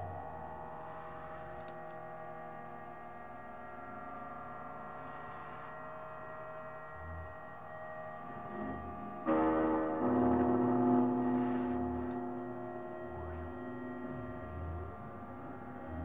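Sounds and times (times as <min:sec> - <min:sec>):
layered humming drone tones: 0:00.0 - 0:16.0
short low pulse: 0:09.3 - 0:14.9.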